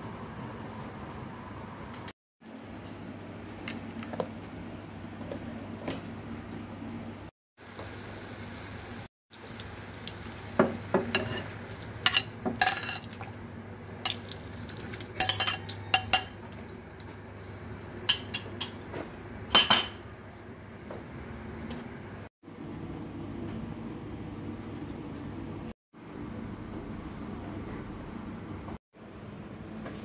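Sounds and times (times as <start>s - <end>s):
utensils clinking against a pot: 10.9s - 13.3s, 14.0s - 16.7s, 18.0s - 18.8s, 19.5s - 20.1s.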